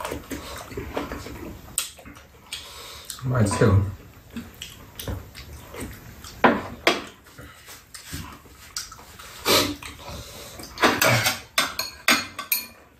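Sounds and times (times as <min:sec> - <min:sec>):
eating mouth noises: 0:07.1 - 0:11.4
utensils knocking against bowls: 0:10.8 - 0:12.8.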